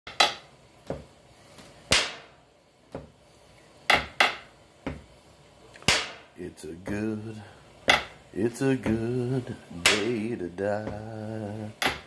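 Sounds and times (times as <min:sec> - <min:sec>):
sharp knocks on hard object: 0:03.9 - 0:05.0, 0:05.9 - 0:06.3.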